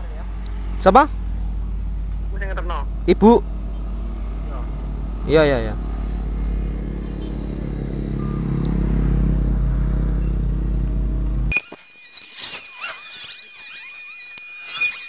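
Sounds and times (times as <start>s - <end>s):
motorcycle engine idling: 0.0s - 11.5s
high-pitched chirping squeaks: 11.5s - 15.0s
thin steady whistle-like tone: 11.5s - 15.0s.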